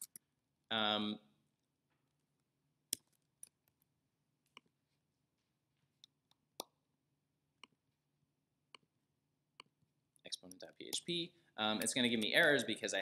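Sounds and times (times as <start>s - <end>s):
keyboard and mouse clicks: 0.0s - 0.2s.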